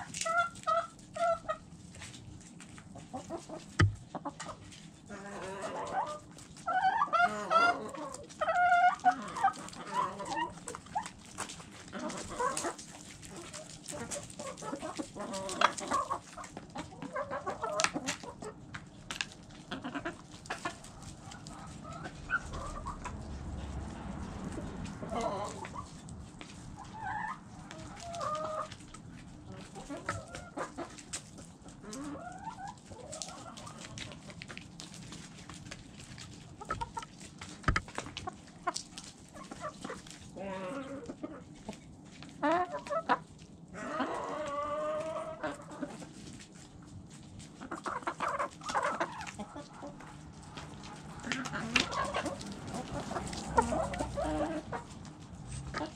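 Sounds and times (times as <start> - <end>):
chickens clucking softly: 0.0 - 55.9
beaks pecking at food: 3.0 - 4.6.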